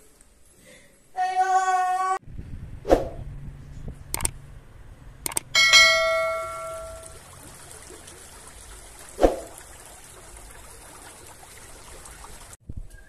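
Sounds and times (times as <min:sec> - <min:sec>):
bell-like ringing tone: 0:05.6 - 0:07.2
stream trickling over stones: 0:05.8 - 0:12.6.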